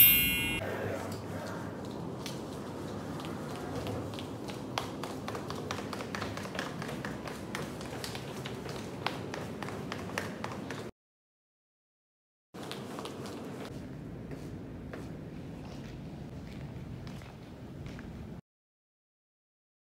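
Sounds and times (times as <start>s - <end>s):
footsteps on tiled floor: 1.8s - 10.9s, 12.6s - 18.2s.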